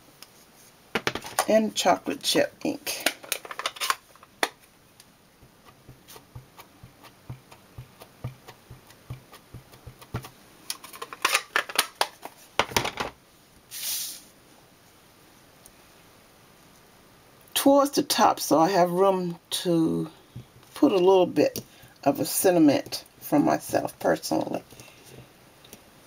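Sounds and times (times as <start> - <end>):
short hiss: 13.7 - 14.4.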